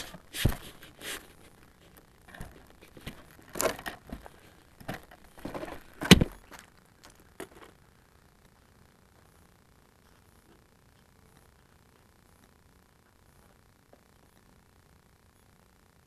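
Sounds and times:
handling clicks and rustles: 0:00.0 - 0:07.8
model plane thump on gravel: 0:02.4 - 0:06.6.

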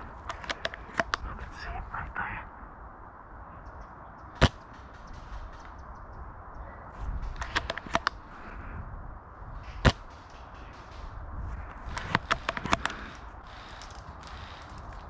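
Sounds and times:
airsoft gunshots cracking: 0:04.4 - 0:05.9, 0:09.7 - 0:13.8.

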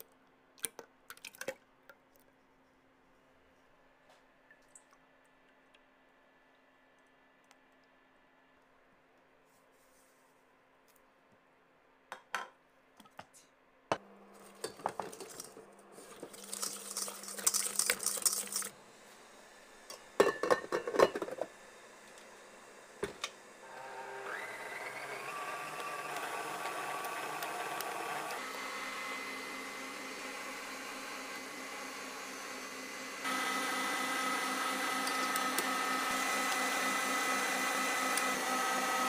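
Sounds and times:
ingredients rustling and clattering: 0:14.4 - 0:18.7
metal bowl and whisk clinking: 0:16.2 - 0:18.7
stand mixer motor whirring: 0:21.4 - 0:39.0.

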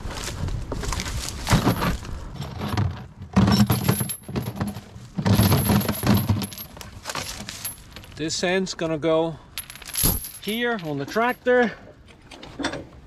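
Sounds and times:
steel chain rattling: 0:01.7 - 0:08.2, 0:09.5 - 0:11.4.

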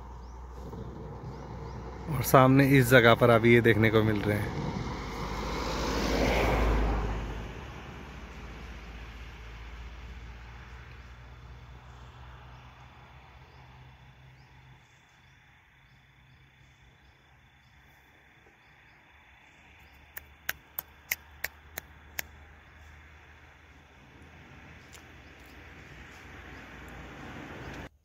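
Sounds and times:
vehicle engine rumble: 0:00.0 - 0:28.0
sharp clicks: 0:19.9 - 0:22.4.

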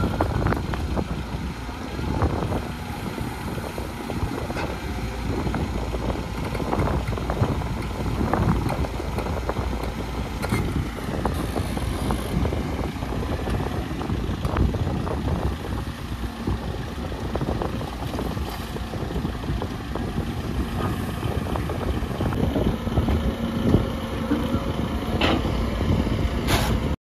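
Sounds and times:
heavy diesel machinery running: 0:00.0 - 0:27.0
knocks and clanks: 0:23.0 - 0:25.6.

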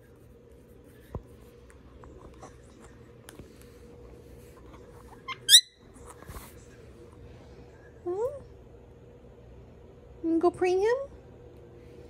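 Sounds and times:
parakeet chirping: 0:05.3 - 0:05.8.

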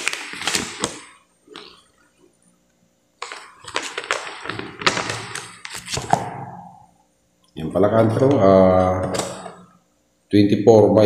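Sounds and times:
packaging rustling and crinkling: 0:00.0 - 0:01.9, 0:03.2 - 0:06.2.

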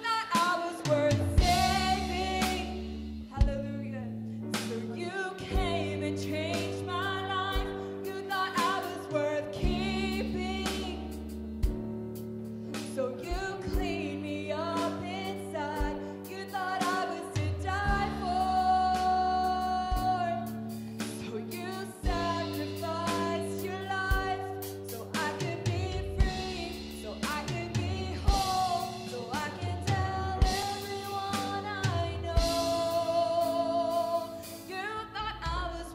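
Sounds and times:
woman singing: 0:00.0 - 0:11.4, 0:12.8 - 0:35.9
gospel band playing: 0:00.0 - 0:35.9
drum hits: 0:00.4 - 0:03.7.

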